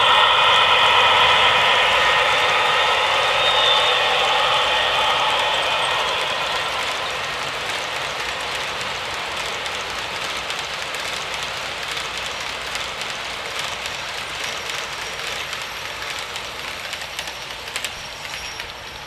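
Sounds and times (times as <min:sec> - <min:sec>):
model train whirring on track: 0:00.0 - 0:19.0.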